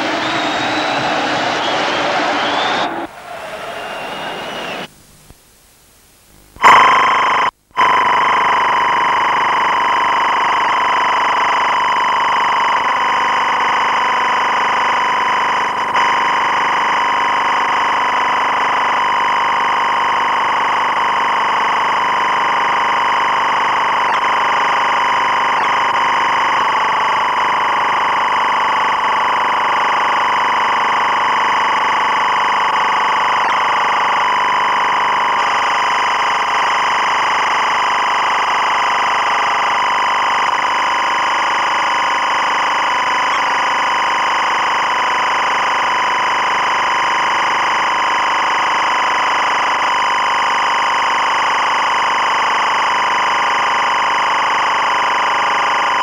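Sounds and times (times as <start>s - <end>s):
steady drone: 0.0s - 4.9s.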